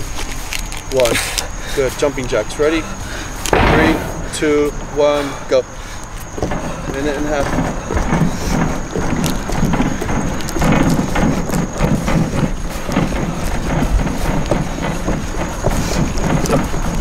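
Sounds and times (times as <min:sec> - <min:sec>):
footsteps thudding on wooden boards: 0:02.7 - 0:17.0.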